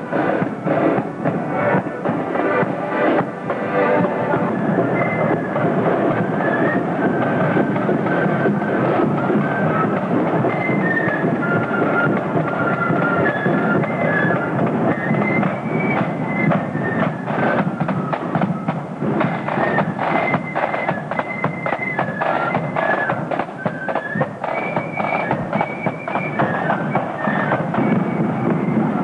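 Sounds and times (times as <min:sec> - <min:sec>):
flutes playing melody: 0:00.0 - 0:29.0
side drums drumming: 0:00.0 - 0:29.0.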